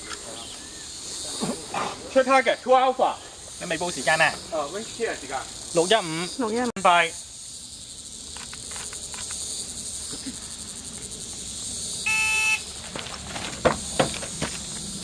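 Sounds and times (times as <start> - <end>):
high drone of insects: 0.0 - 15.0
sharp knocks: 13.4 - 14.6.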